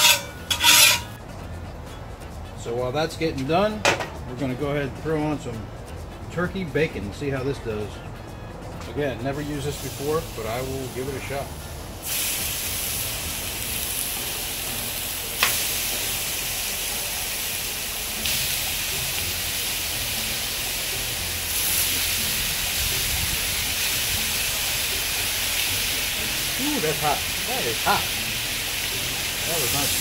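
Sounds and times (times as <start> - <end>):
bacon sizzling on griddle: 0.0 - 1.2, 9.5 - 30.0.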